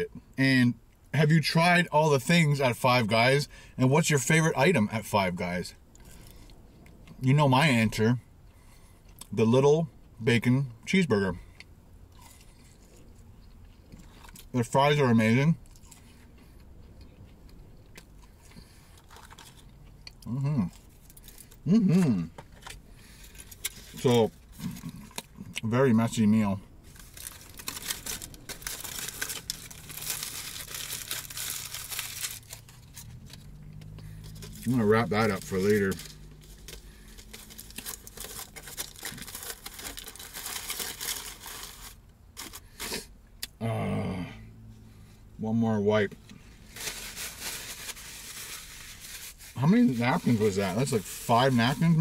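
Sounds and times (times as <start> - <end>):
man humming: 21.7 - 22.3, 43.6 - 44.5
aluminium foil crinkling: 26.9 - 33.5, 34.2 - 43.0, 46.7 - 52.0.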